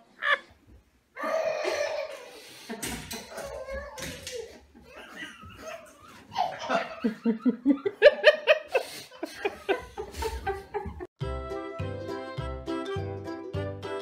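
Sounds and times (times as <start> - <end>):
person laughing hard: 4.8 - 11.1
cheerful music with steady beat: 10.9 - 14.0.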